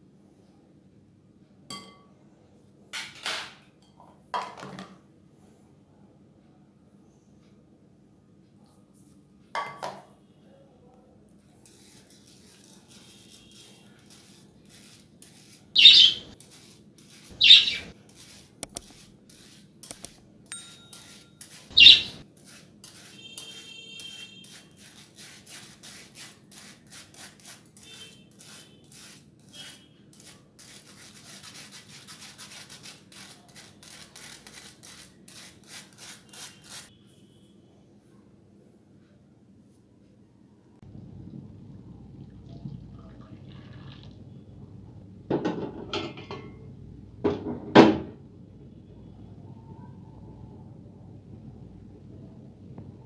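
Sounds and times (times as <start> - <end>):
whisk scraping metal sieve: 11.6 - 23.6, 24.4 - 36.9
metal clinks: 20.5 - 21.1
steady low hum: 40.8 - 43.5.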